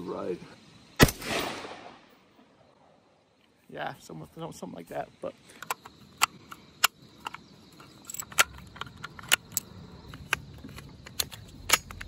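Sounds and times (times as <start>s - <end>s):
magazine clicks: 5.6s - 12.0s.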